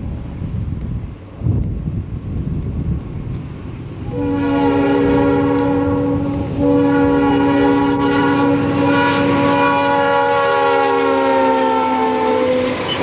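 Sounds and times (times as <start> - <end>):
train rumbling: 0.0 - 13.0
locomotive air horn: 4.0 - 13.0.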